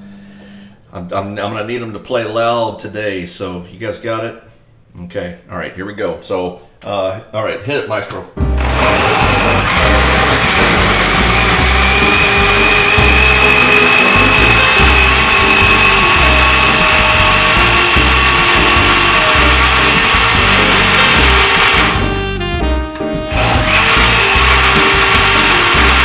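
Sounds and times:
background music: 8.4 - 26.0
electric blender whirring: 8.6 - 22.3, 23.3 - 26.0.

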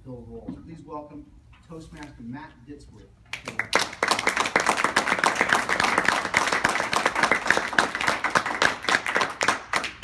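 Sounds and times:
small audience clapping: 3.3 - 10.0.

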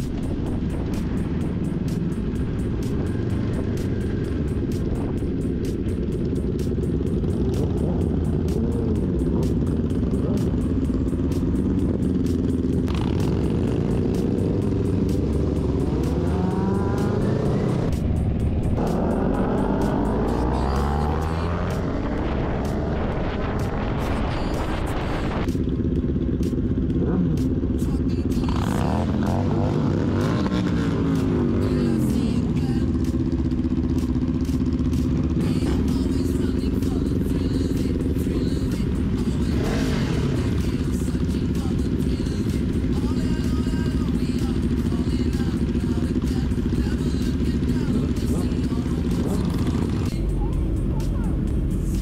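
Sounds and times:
wind rumble: 0.0 - 9.2, 14.6 - 27.8
motorcycle engine accelerating: 0.0 - 52.0
music with steady beat: 0.0 - 52.0.

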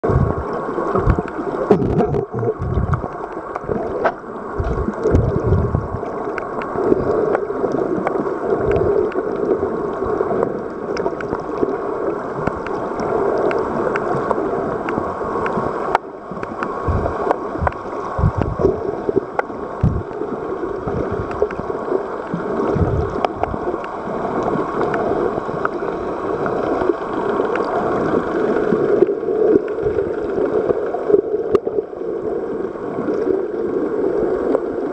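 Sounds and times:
water rushing underwater: 0.0 - 34.9
low thumps: 1.0 - 3.1, 16.8 - 18.7, 19.8 - 20.1
faint clicks: 6.0 - 9.4, 10.9 - 11.8, 12.4 - 20.2, 21.2 - 21.6.

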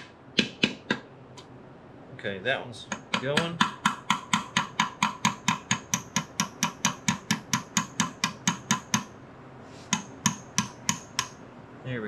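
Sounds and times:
hammer striking metal: 2.9 - 9.1, 9.9 - 11.4.

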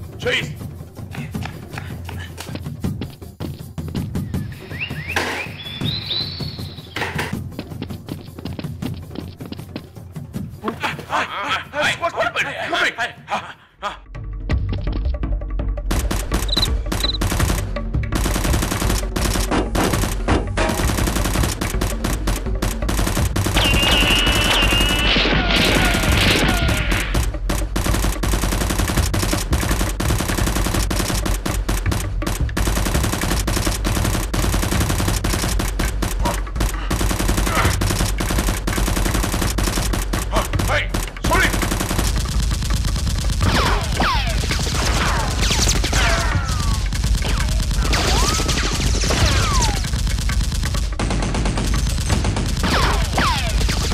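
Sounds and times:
background music: 0.0 - 53.9
automatic gunfire sound effects: 15.9 - 53.9.

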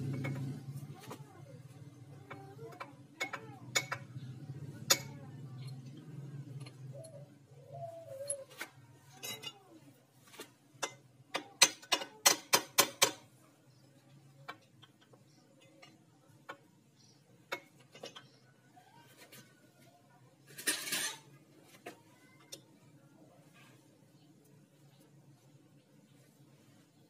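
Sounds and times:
metal engine parts clicking: 2.2 - 7.2, 17.4 - 18.5.

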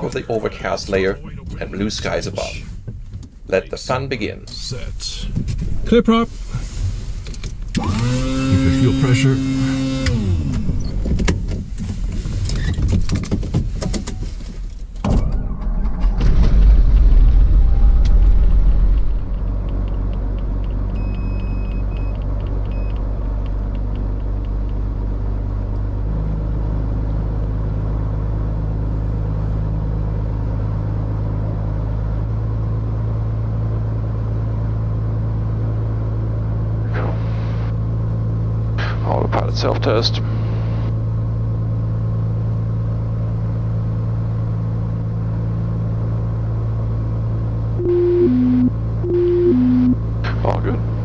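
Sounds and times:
piston aircraft engine running: 7.2 - 11.9, 46.4 - 51.0.

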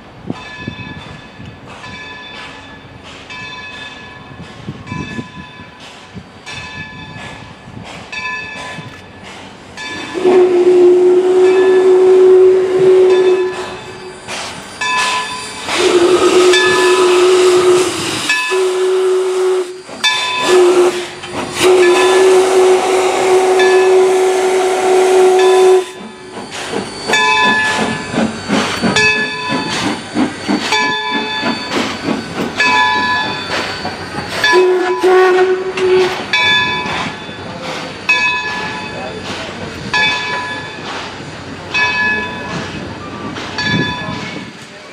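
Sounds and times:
train wheels clattering on rail joints: 0.2 - 44.9
hiss of steam: 4.3 - 44.9
steam locomotive whistle: 9.9 - 37.0.

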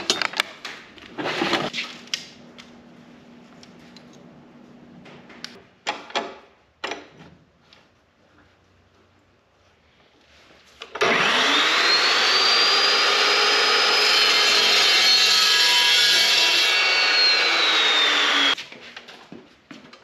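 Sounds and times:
chop saw cutting metal: 11.0 - 18.6.

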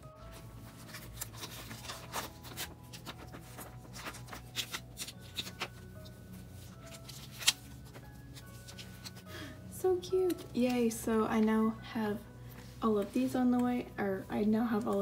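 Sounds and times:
plastic sleeves rustling: 0.0 - 9.5.

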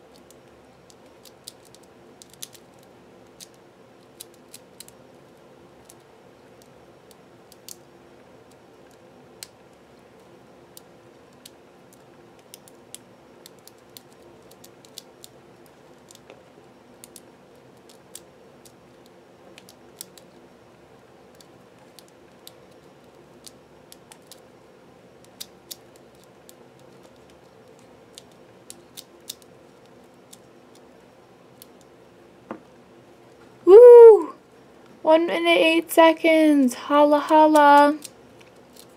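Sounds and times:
faint steady hum: 0.0 - 38.9
puzzle cube clicking: 0.2 - 5.0, 12.4 - 15.4, 25.2 - 29.5.

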